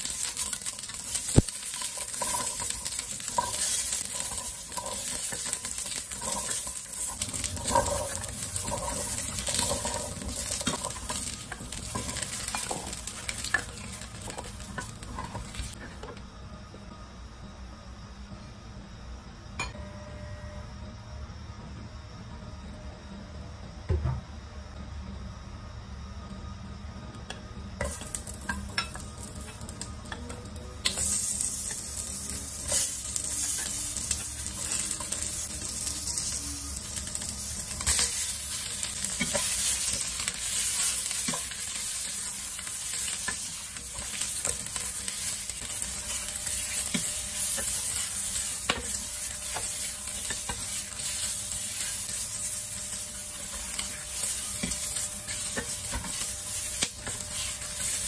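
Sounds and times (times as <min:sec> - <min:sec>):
vegetables sizzling in hot oil: 0:00.0 - 0:15.8, 0:27.7 - 0:58.0.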